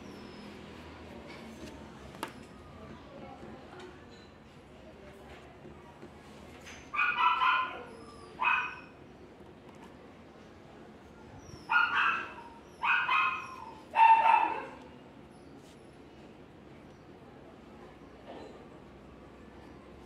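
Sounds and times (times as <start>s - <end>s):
dog barking: 7.0s - 8.9s, 11.7s - 14.8s.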